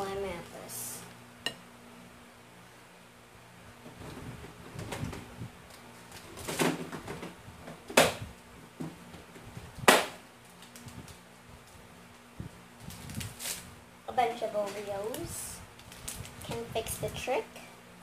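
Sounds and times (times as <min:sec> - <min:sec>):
low steady hum: 0:00.0 - 0:18.0
rustling: 0:10.4 - 0:13.8.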